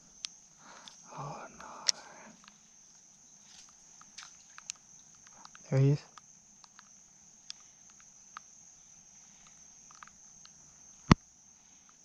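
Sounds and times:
insects droning: 0.0 - 12.0
light ticks: 3.6 - 8.5.

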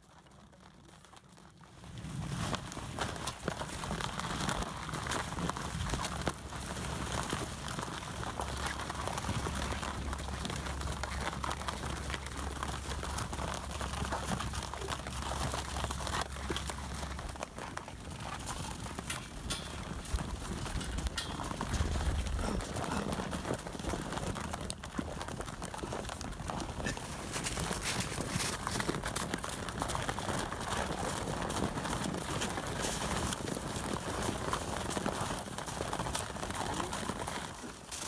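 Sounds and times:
horses crunching hay: 0.0 - 38.0.

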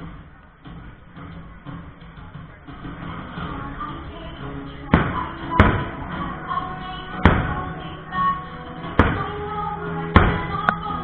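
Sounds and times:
music from loudspeakers: 0.0 - 11.0
fireworks bangs: 4.9 - 6.3, 7.2 - 7.8, 8.8 - 9.4.

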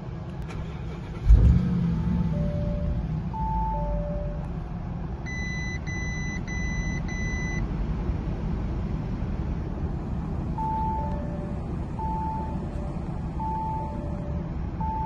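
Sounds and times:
car engine idling: 0.0 - 15.0
car warning chime: 1.9 - 4.5, 5.2 - 7.7, 10.6 - 15.0.

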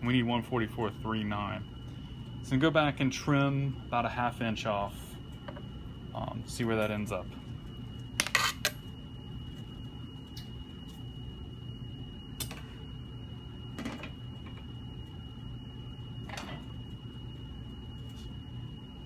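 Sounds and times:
steady low hum: 0.0 - 19.0
thin high whine: 0.0 - 19.0.

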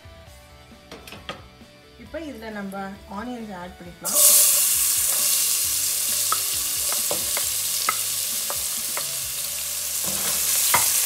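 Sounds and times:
onions sizzling in hot oil: 4.0 - 11.0.

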